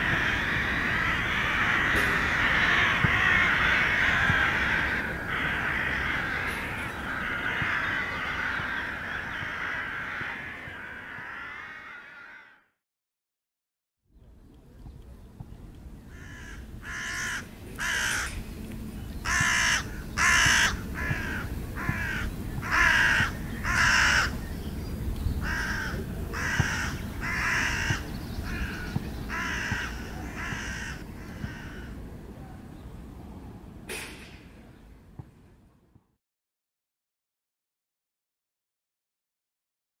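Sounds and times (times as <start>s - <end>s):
crows cawing: 0.0s - 12.7s, 16.1s - 18.4s, 19.2s - 24.4s, 25.4s - 32.0s.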